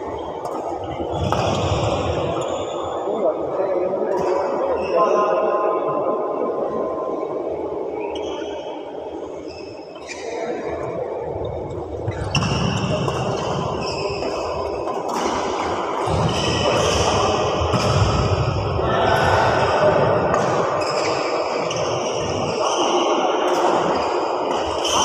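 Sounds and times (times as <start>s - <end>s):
rackets hitting shuttlecock: 0.4s - 2.2s, 12.1s - 18.5s, 23.5s - 25.0s
shoes squeaking on floor: 9.4s - 10.6s, 12.1s - 15.0s, 20.8s - 23.2s, 24.6s - 25.0s.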